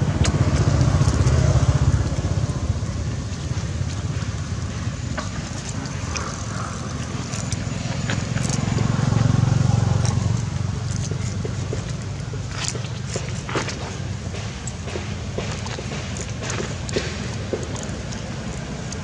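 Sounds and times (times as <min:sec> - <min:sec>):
motor engine humming: 0:00.0 - 0:19.0.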